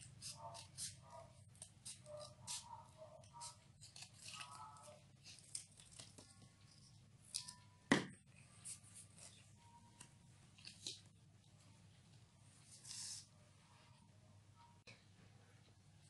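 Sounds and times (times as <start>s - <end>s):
sharp knock on tabletop: 7.9s - 8.2s
paper rustling and scraping: 12.6s - 13.3s.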